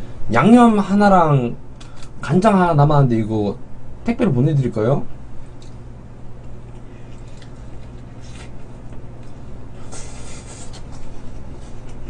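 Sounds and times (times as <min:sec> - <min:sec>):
steady low hum: 0:00.0 - 0:12.0
wet chewing and biting: 0:06.4 - 0:09.2.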